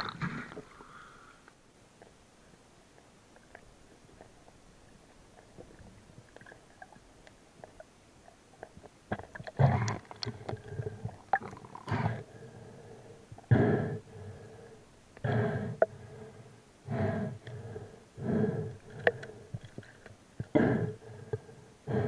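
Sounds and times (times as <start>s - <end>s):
faint clicks underwater: 2.9s - 11.9s, 18.8s - 20.6s.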